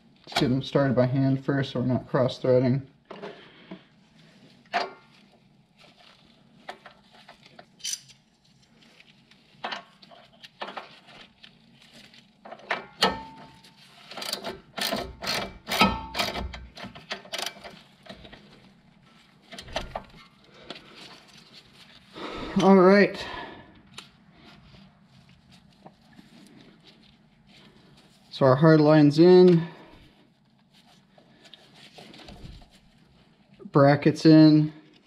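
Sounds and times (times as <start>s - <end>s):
hand ratchet clicking: 14.1s - 17.8s.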